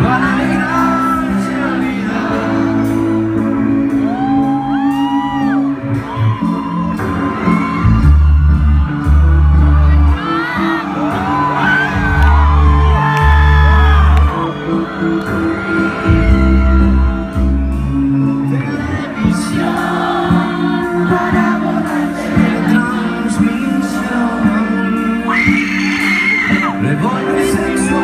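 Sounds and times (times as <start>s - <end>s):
deep bass notes: 0.0s - 25.0s
person singing: 0.0s - 28.0s
rock band playing live: 0.0s - 28.0s
crowd whooping and shouting: 0.1s - 1.8s, 3.7s - 19.2s, 25.2s - 28.0s.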